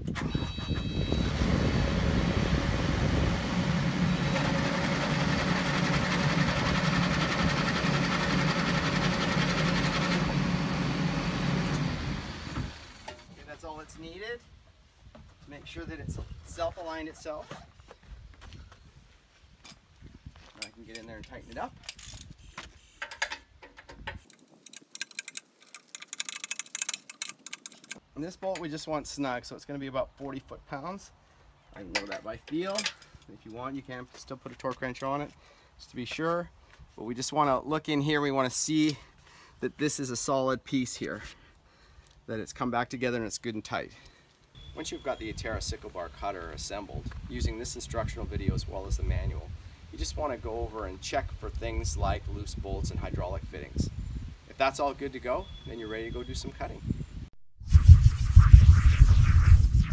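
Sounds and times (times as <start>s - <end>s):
loader engine running under load: 1.0s - 13.0s.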